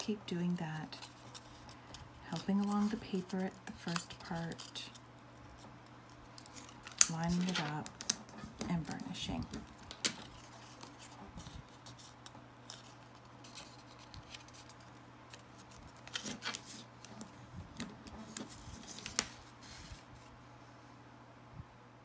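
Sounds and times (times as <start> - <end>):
paper rustling and scraping: 0.8 - 20.4.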